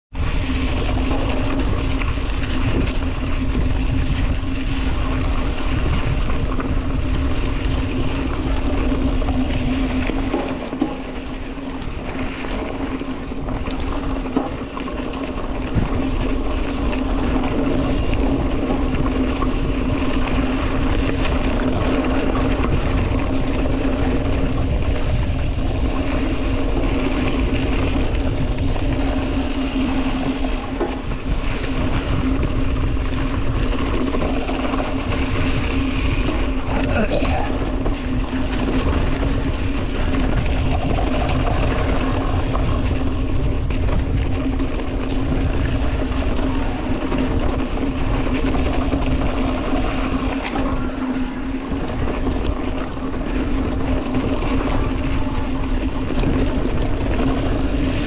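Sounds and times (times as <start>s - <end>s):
low rumble and rushing noise: 0.1s - 58.0s
motor humming: 8.2s - 14.6s, 23.5s - 38.7s, 39.4s - 44.0s, 46.0s - 58.0s.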